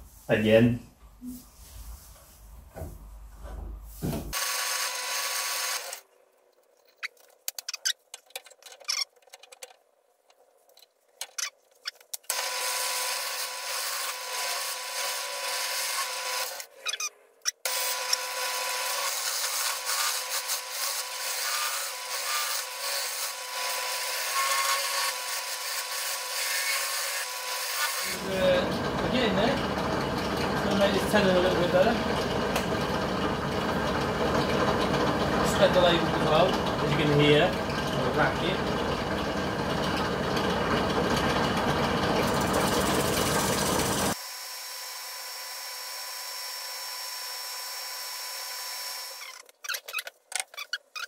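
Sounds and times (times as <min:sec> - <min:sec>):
tool scraping spinning wood bowl: 0:11.4 - 0:44.2.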